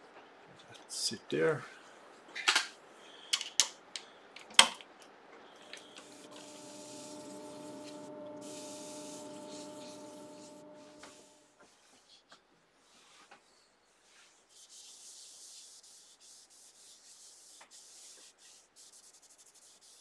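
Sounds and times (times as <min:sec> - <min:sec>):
wood lathe humming: 0:05.7 - 0:11.5
hiss of sanding: 0:05.8 - 0:11.4.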